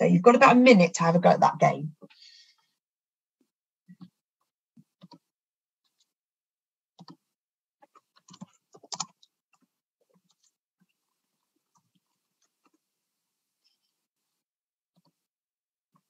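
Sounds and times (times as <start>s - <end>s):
computer clicks and taps: 3.9s - 4.2s, 4.8s - 5.3s, 7.0s - 10.5s, 15.0s - 15.2s.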